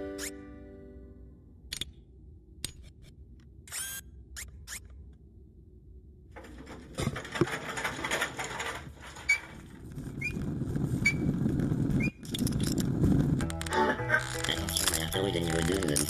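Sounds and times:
short squeak: 0.2 - 0.4, 3.7 - 4.9
wheels rumbling on rails: 6.3 - 16.0.

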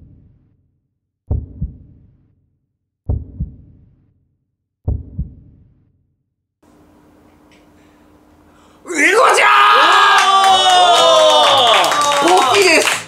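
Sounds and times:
heartbeat thumps: 1.3 - 2.2, 3.1 - 4.0, 4.8 - 5.8.

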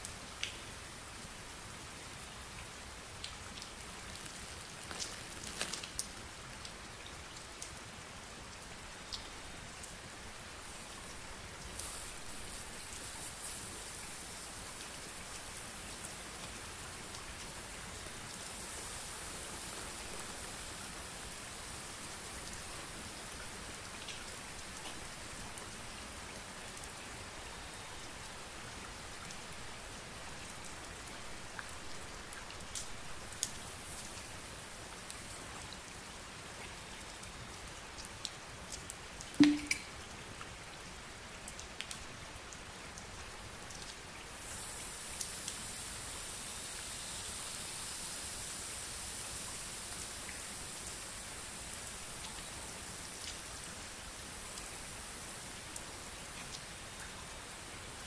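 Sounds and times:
water trickling onto plastic wrap: 3.0 - 6.8, 10.6 - 25.7.

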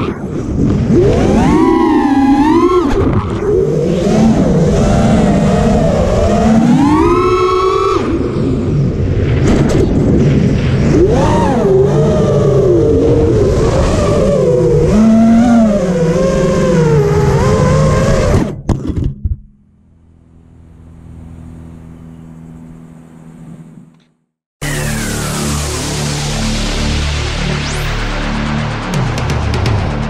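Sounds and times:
drone motors whining: 0.0 - 18.7
wind noise: 0.0 - 19.4.

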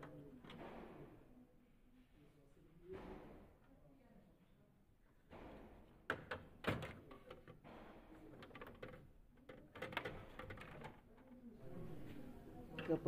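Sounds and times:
plastic clicks and knocks: 6.1 - 11.4.

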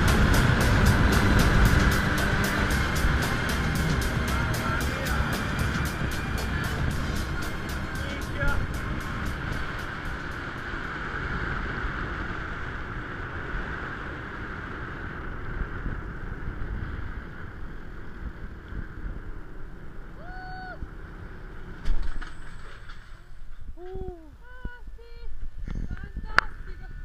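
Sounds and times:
zipline pulleys whirring on cable: 0.0 - 13.4
wind rush: 0.0 - 21.0.

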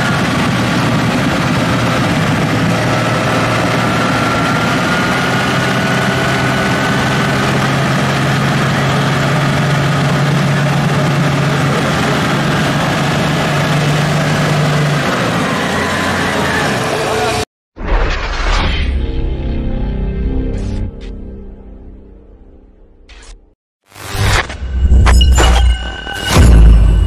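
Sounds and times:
diesel engine running: 0.0 - 17.5.

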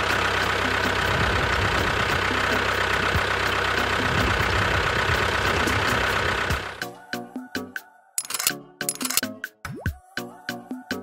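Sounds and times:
small engine idling: 0.0 - 6.8.

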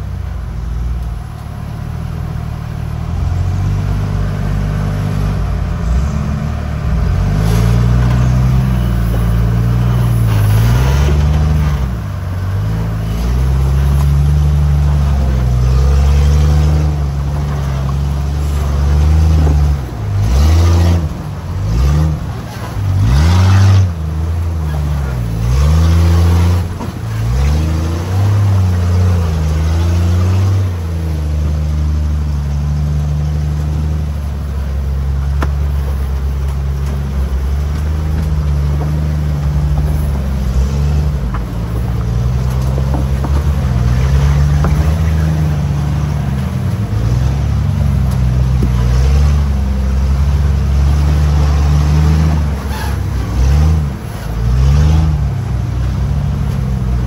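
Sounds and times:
off-road vehicle engine revving: 0.0 - 57.0.

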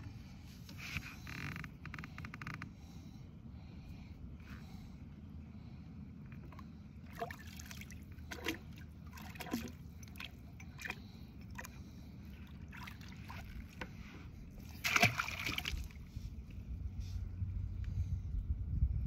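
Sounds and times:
low rumble: 13.3 - 19.0
splashy rustle: 14.6 - 16.0.

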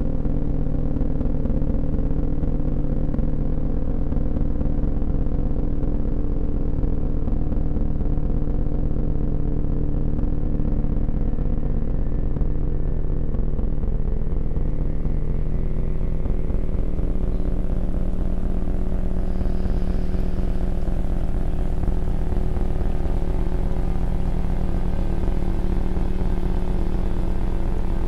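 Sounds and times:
low droning rumble with hum tones: 0.0 - 28.0.

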